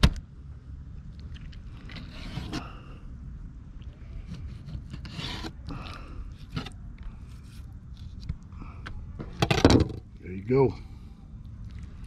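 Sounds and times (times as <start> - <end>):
knife cutting and scraping fish: 1.8 - 2.8, 4.2 - 8.1.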